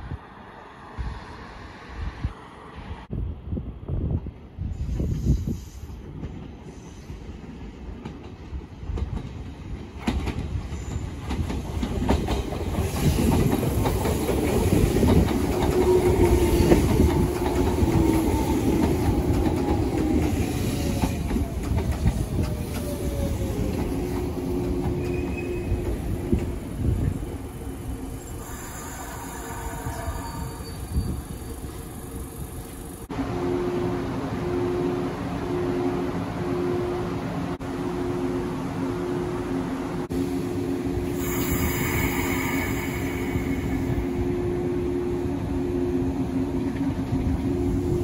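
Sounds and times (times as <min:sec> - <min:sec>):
train wheels clattering on rails: 0:06.0 - 0:27.2.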